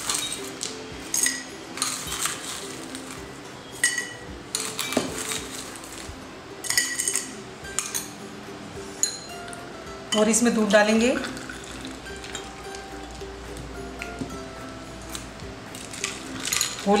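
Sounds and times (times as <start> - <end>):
ice and spoon clinking on glass: 0.0 - 8.2, 9.0 - 9.5, 10.1 - 13.2, 15.1 - 17.0.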